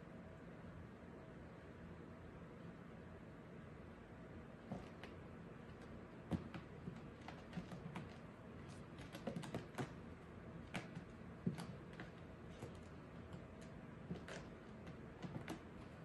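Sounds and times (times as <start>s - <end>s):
kitten claws tapping and scratching: 6.3s - 16.0s.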